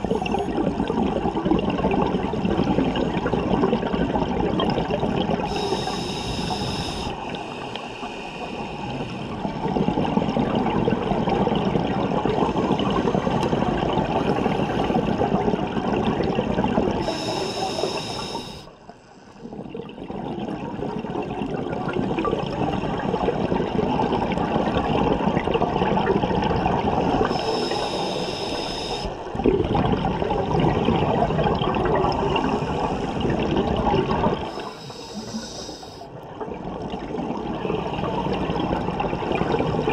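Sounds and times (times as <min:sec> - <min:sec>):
exhaled bubbles gurgling: 0:00.0 - 0:39.9
regulator inhale hiss: 0:05.5 - 0:09.4, 0:17.0 - 0:19.4, 0:27.2 - 0:29.2, 0:34.4 - 0:36.1.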